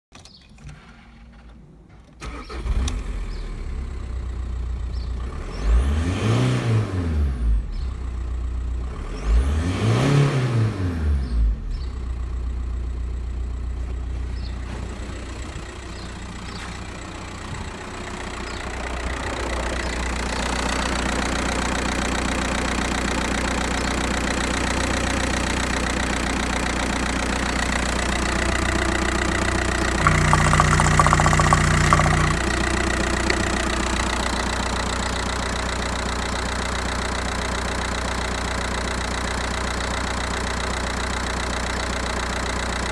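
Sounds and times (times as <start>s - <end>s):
diesel engine starting and revving: 2.2s - 12.9s.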